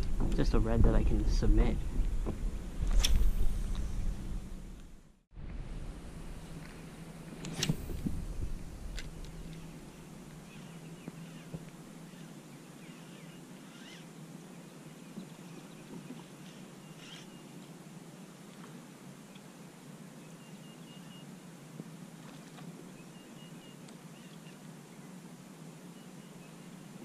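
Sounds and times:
low steady hum: 0.0 - 27.0
faint bird chirps: 9.5 - 17.6, 20.2 - 21.4, 22.9 - 25.1.

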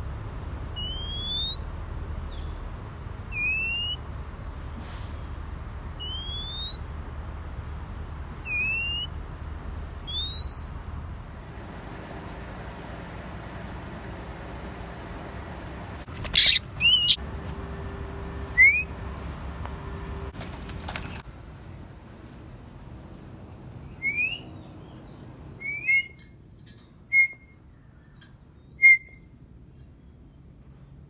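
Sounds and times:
bird rising whistles: 0.8 - 1.6, 3.3 - 4.0, 6.0 - 6.8, 8.5 - 9.1, 10.1 - 10.7, 16.4 - 17.2, 25.6 - 26.2, 28.8 - 29.2
harsh bird call: 0.8 - 1.6, 6.0 - 6.8, 10.0 - 10.7, 16.4 - 17.2.

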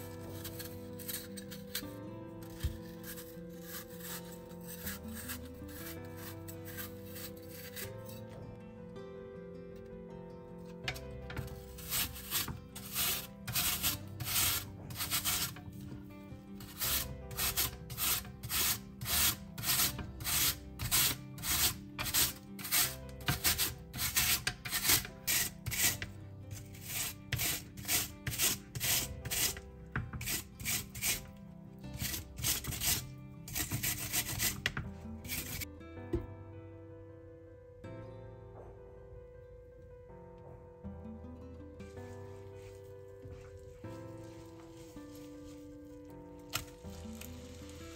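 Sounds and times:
apple rasped on grater: 0.0 - 8.2, 11.3 - 15.9, 16.6 - 35.7, 43.3 - 47.9
soft background music: 0.0 - 47.9.

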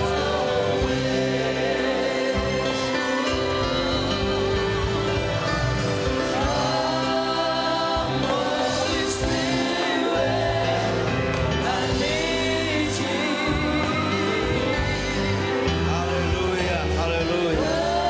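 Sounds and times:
gospel choir singing: 0.0 - 18.0.

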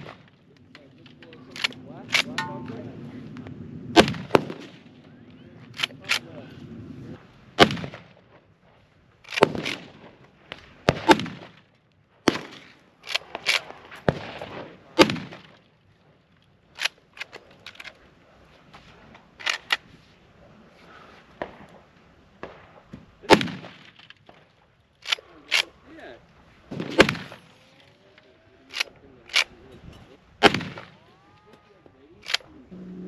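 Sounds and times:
rifle shots: 0.0 - 0.4, 3.9 - 5.0, 7.6 - 8.2, 9.3 - 10.2, 10.8 - 15.6, 22.4 - 25.8, 26.7 - 27.6, 30.4 - 31.1
rifle lever clacking: 32.2 - 32.4.

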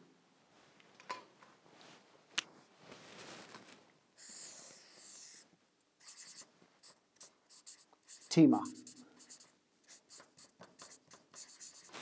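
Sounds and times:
marker scratching on paper: 4.2 - 12.0.

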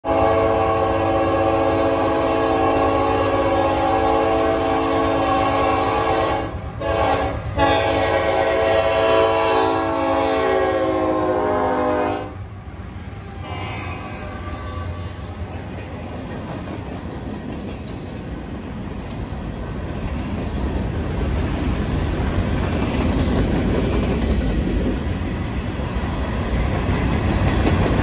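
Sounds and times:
locomotive air horn blowing: 0.0 - 12.4, 13.4 - 15.2
passing locomotives rumbling: 0.0 - 28.0.

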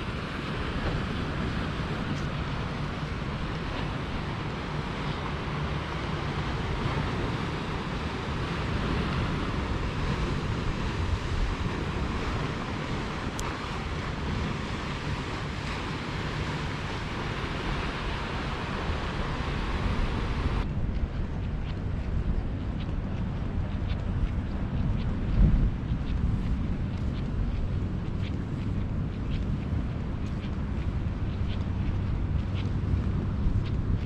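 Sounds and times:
surf washing against rocky shore: 0.0 - 20.6
wind rumbling on microphone: 0.0 - 34.0.

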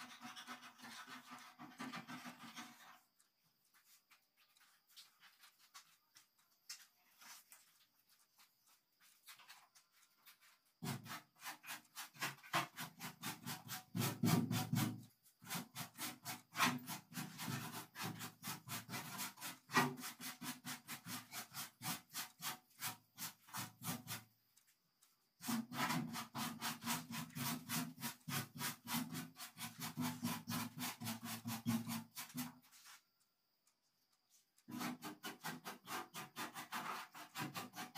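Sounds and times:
paintbrush rubbing on metal: 7.2 - 24.4, 25.0 - 33.0, 34.3 - 37.9.

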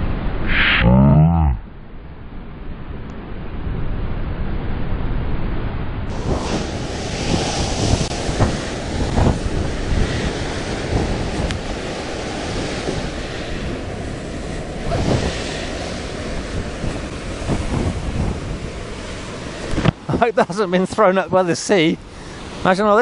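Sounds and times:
wind buffeting microphone: 3.3 - 22.6
surf crashing on rocks: 6.1 - 23.0.

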